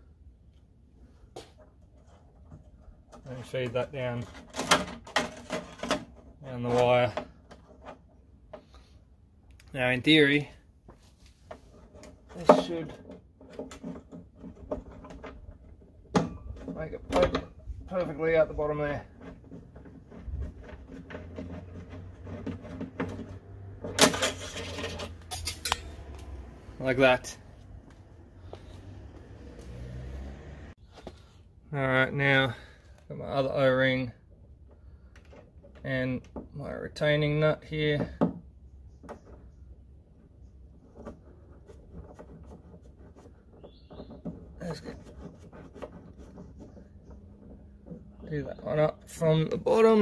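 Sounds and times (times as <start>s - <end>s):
wire clicks and scrapes on plastic: 40.7s - 48.2s.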